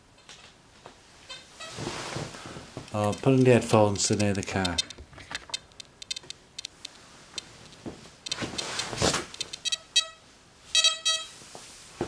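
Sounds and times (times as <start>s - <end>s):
metal detector ticks: 4.0s - 10.2s, 10.8s - 11.3s.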